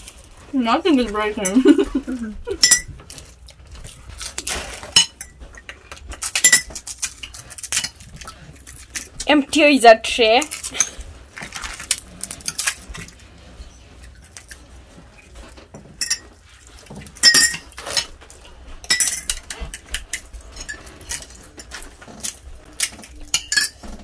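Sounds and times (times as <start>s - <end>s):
spoons clinking on plates and cups: 1.3s - 1.8s, 2.5s - 3.3s, 4.9s - 8.1s, 15.8s - 16.4s, 17.1s - 18.2s, 18.8s - 24.0s.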